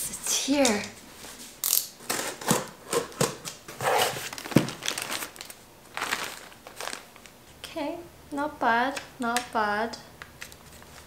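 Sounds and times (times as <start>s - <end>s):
packing rustling: 3.7s - 7.4s.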